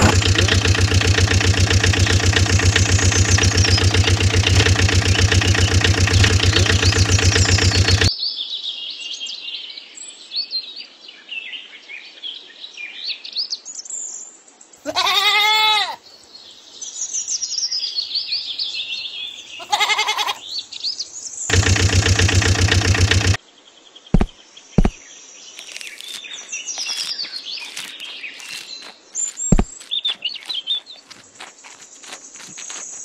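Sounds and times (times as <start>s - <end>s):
birds chirping: 0.0s - 8.1s, 16.1s - 23.4s, 24.2s - 33.0s
goats bleating: 14.9s - 16.0s, 19.6s - 20.4s
sharp knocks: 24.2s - 25.0s.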